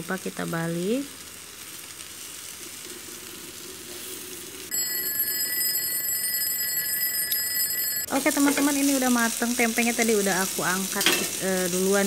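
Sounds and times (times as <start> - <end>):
food sizzling in frying pan: 0.0 - 12.0
alarm clock ringing: 4.7 - 9.6.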